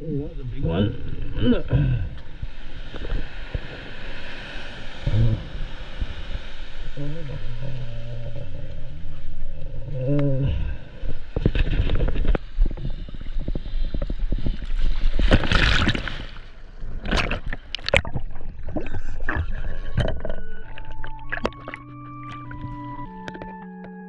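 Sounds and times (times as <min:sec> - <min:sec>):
sea water sloshing and splashing: 0:01.0 - 0:09.5, 0:10.8 - 0:23.0
background music: 0:21.1 - 0:24.0.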